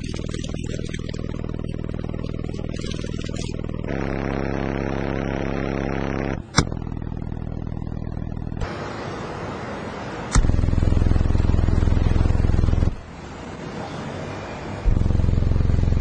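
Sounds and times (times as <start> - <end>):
deep bass tones from subwoofers: 0.0 - 8.7, 10.4 - 13.0, 14.9 - 16.0.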